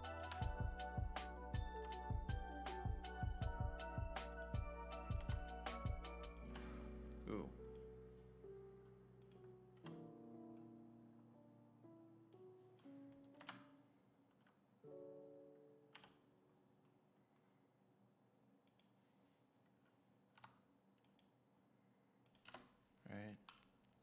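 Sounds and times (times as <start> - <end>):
soft background music: 0.0 - 14.2, 14.9 - 16.8
computer mouse clicks: 18.6 - 19.0, 20.3 - 21.4, 22.2 - 22.8.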